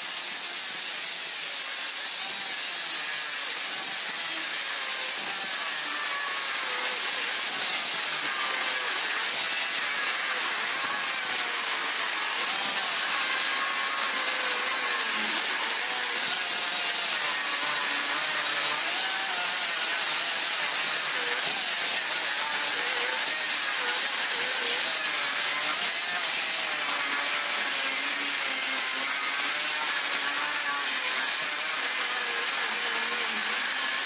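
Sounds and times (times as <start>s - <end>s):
angle grinder grinding metal: 0.0s - 34.0s.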